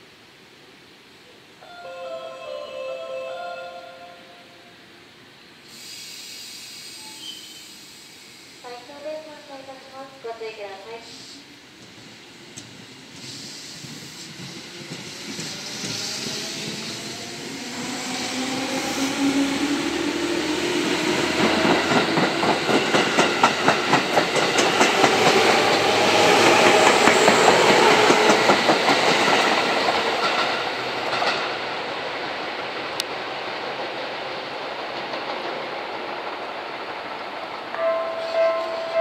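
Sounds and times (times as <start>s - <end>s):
train wheels clicking over rail joints: 11.8s - 17.2s, 20.8s - 31.7s, 32.9s - 37.8s.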